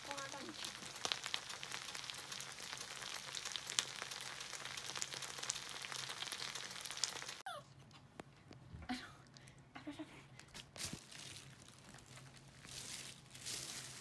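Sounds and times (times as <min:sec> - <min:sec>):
food sizzling on hot plate: 0:00.0 - 0:07.4.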